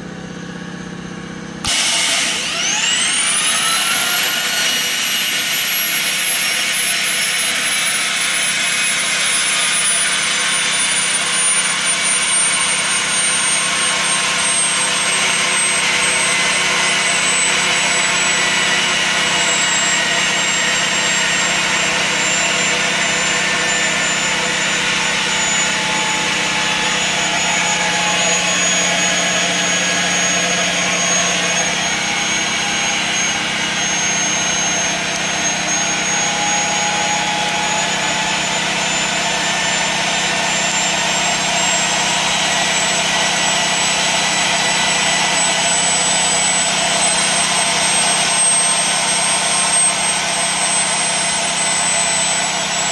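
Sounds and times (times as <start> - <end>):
turbine whine: 0.0 - 52.9.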